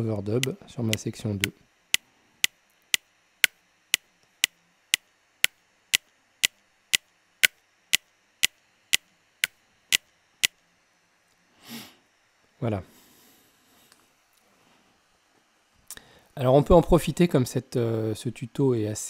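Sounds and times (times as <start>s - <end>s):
metronome clicking: 0.4s - 10.6s.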